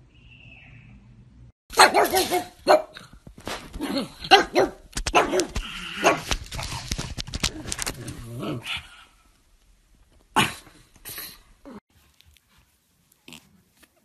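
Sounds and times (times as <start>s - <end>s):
dog barking: 1.7s - 3.0s, 4.2s - 6.3s.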